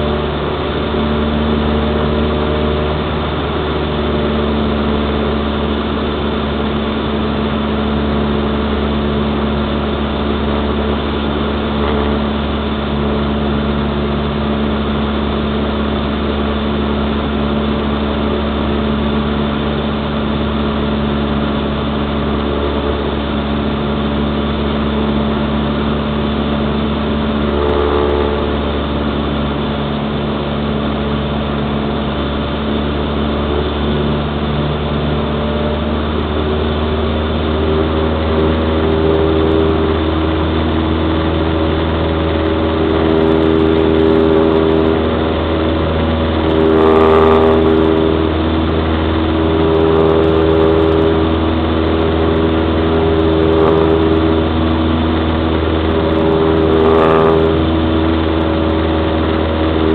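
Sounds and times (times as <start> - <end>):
aircraft engine and propeller drone: 0.0 - 59.9.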